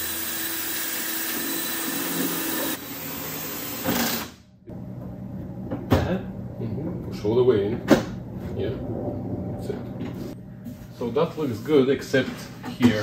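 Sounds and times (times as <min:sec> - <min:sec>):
cordless drill drilling metal: 0:00.0 - 0:02.8, 0:03.5 - 0:04.3.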